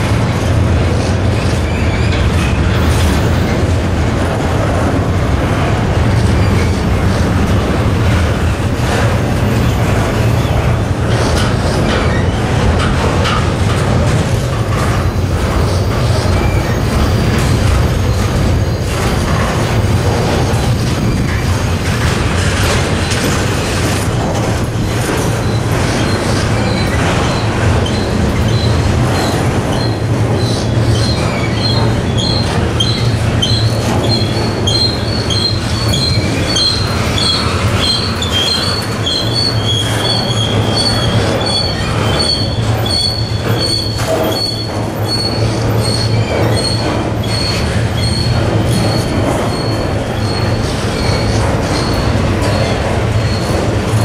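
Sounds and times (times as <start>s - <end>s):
freight train rumbling past: 0.0s - 54.0s
train wheel clicks: 0.0s - 54.0s
wheel squealing: 25.2s - 54.0s.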